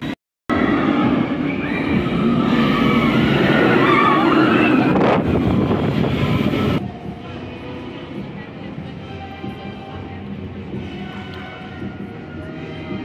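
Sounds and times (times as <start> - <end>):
roller coaster train rushing: 0.5 - 8.4
riders screaming: 1.6 - 5.4.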